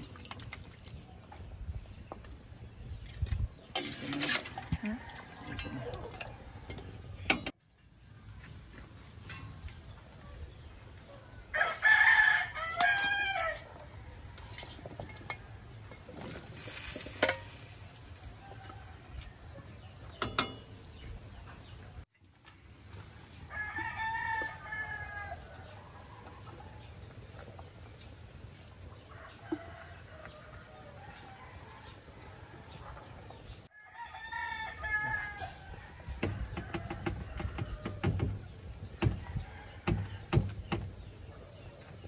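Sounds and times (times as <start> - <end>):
rooster crowing: 11.5 - 13.6, 23.5 - 25.7, 33.7 - 38.0
metal ladle clinking on pot: 17.1 - 17.6, 20.2 - 20.7.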